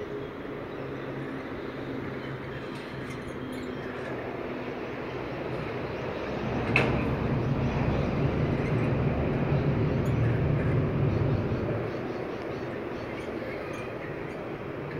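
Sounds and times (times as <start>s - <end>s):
vehicle passing rumble: 4.1s - 14.9s.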